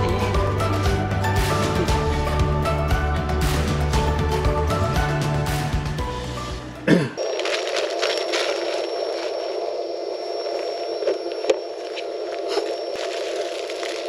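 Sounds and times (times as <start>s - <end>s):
plastic packet crinkling: 7.2s - 9.6s, 12.1s - 14.0s.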